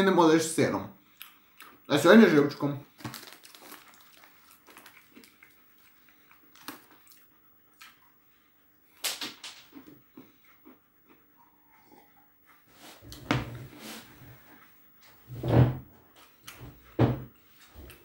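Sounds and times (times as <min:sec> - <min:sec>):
person eating: 0:02.9 - 0:08.2.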